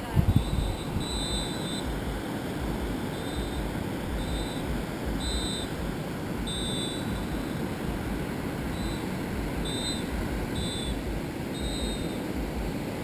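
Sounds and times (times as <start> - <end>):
surf washing up beach: 0.0 - 13.0
wind rumbling on microphone: 0.0 - 13.0
short high beeping tones: 0.2 - 2.1, 2.9 - 7.7, 8.6 - 12.2.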